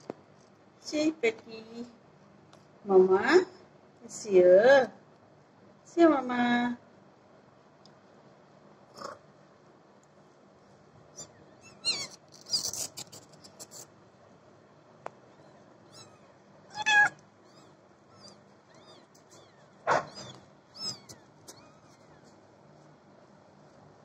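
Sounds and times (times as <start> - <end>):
kittens mewing: 8.9 - 9.3, 11.1 - 13.9, 15.2 - 22.4
scratchy rustle: 11.8 - 13.9.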